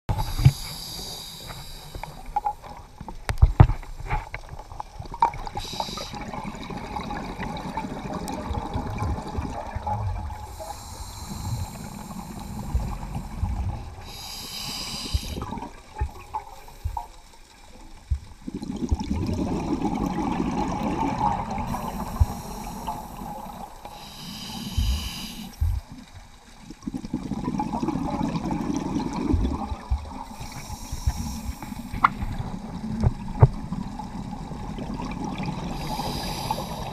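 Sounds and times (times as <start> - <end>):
diver breathing through regulator: 0.1 - 2.2, 5.6 - 6.3, 10.4 - 15.6, 21.6 - 25.9, 30.3 - 32.3, 35.7 - 36.9.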